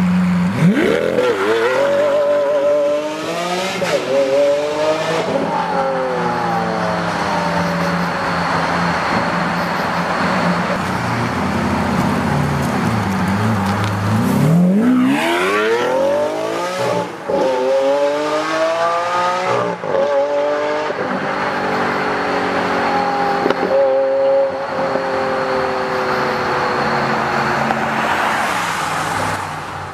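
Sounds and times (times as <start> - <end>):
car engine accelerating hard: 0.0 - 29.6.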